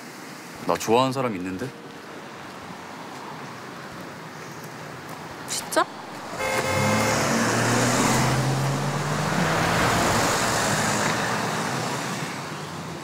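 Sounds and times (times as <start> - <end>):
vehicle driving past: 5.9 - 12.5.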